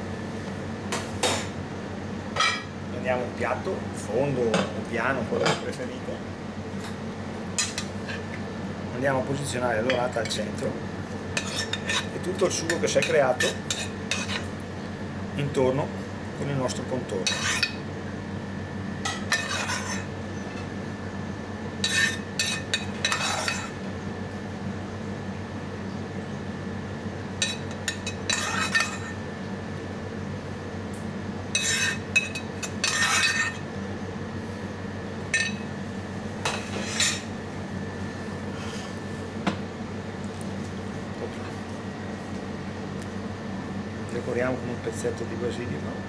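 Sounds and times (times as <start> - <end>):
steady hum: 0.0 - 46.0
metal spoon scraping a frying pan: 11.4 - 12.1, 17.3 - 17.8, 19.3 - 20.1, 21.8 - 23.7, 28.3 - 29.1, 31.6 - 33.6.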